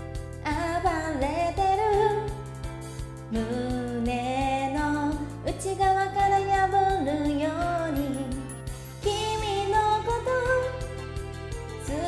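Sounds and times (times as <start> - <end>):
karaoke backing track: 0.0 - 12.0
woman singing pop song: 0.0 - 12.0.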